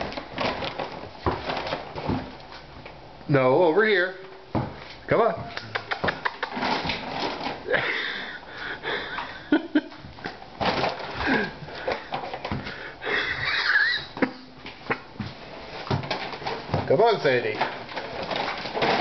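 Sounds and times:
plastic bag crinkling: 0.0s - 2.7s, 6.2s - 7.9s, 10.2s - 14.2s, 15.5s - 19.0s.

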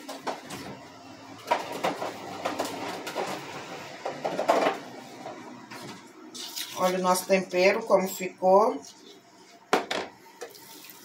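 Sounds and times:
hands mixing in plastic bowl: 5.7s - 7.7s.

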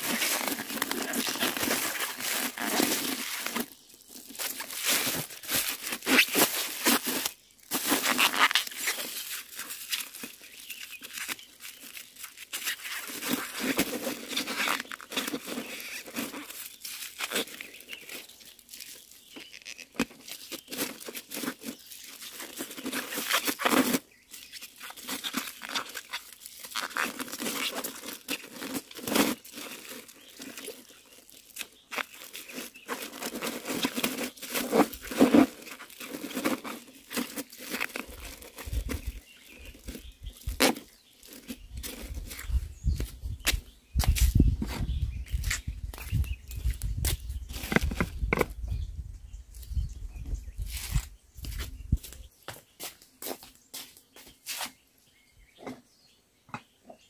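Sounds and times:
plastic bag crinkling: 0.0s - 42.6s.

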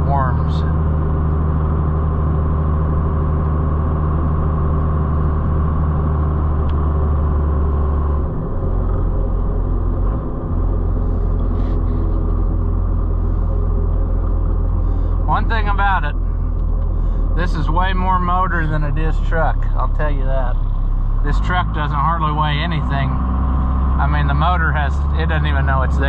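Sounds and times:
diesel truck engine droning: 0.0s - 26.0s.

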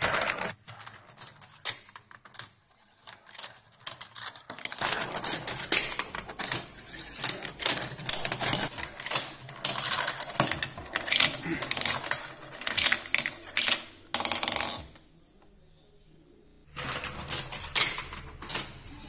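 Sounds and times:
marbles clicking through plastic track: 0.1s - 15.0s.

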